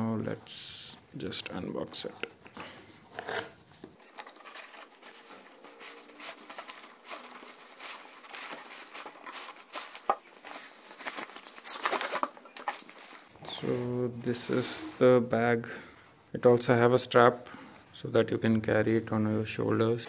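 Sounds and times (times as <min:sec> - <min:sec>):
cardboard tearing and rustling: 0:04.0 - 0:13.3
carry bag rustling: 0:04.0 - 0:13.3.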